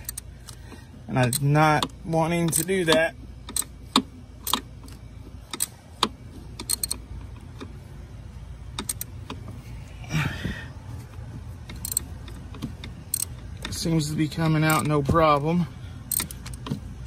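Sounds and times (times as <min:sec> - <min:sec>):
ratchet clicking: 0:00.0 - 0:07.8, 0:08.7 - 0:09.6, 0:11.6 - 0:15.4, 0:16.0 - 0:16.8
low steady hum: 0:00.0 - 0:17.0.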